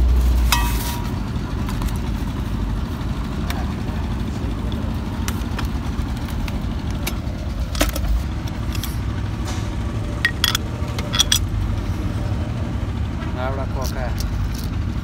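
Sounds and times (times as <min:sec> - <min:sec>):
low engine rumble: 0:00.0 - 0:15.0
metal parts clicking: 0:07.7 - 0:09.0, 0:10.2 - 0:11.5, 0:13.8 - 0:14.8.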